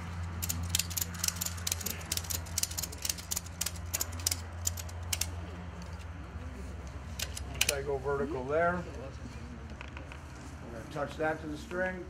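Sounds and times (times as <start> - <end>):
ratchet strap pawl clicking: 0.0 - 6.0.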